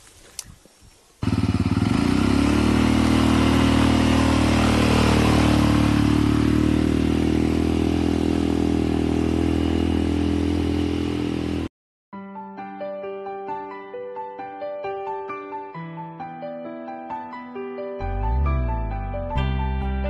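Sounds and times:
motorcycle engine running: 1.2 - 11.7.

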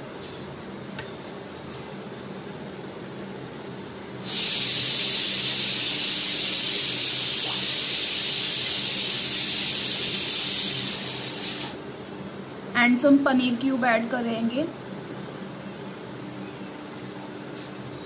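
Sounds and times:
loud steady hiss: 4.1 - 11.8.

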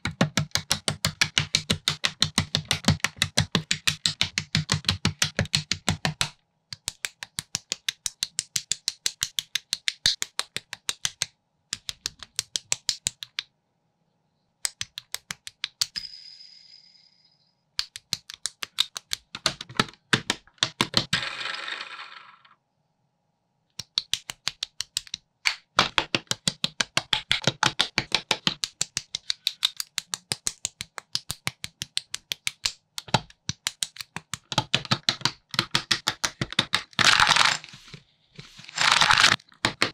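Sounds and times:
plastic bricks clicking together: 28.6 - 37.8.

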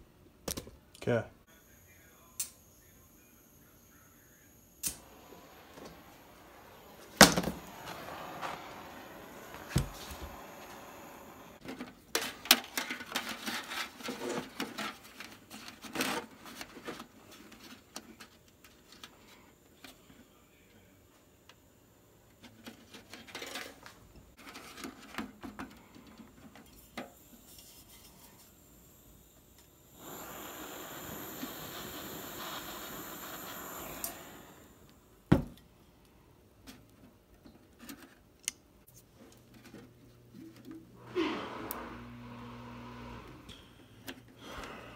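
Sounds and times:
blowtorch hissing: 2.9 - 11.6, 27.1 - 35.2, 41.0 - 43.6.

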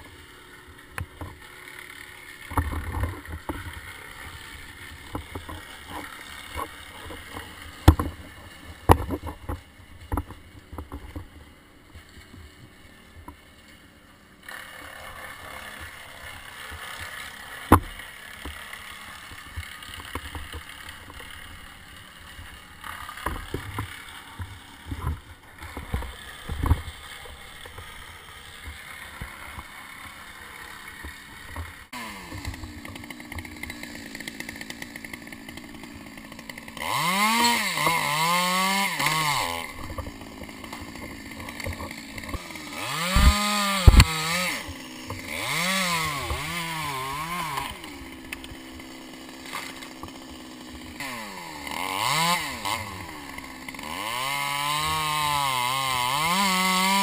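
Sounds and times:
chainsaw engine: 0.0 - 57.0
rope knocking against bark: 5.0 - 8.2, 8.9 - 11.2, 17.7 - 18.6, 39.0 - 45.3
sharp thumps: 39.0 - 46.6.

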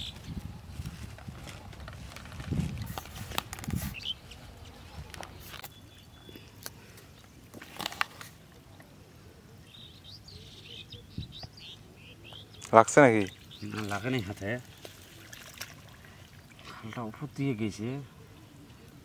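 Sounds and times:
bird chirping: 3.9 - 7.4, 9.6 - 15.3.

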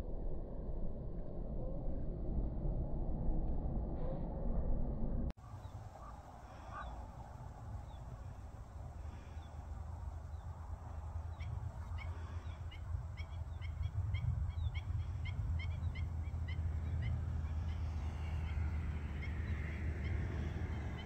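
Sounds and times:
steady low rumble: 0.0 - 21.0
bird short sharp calls: 5.5 - 7.1.

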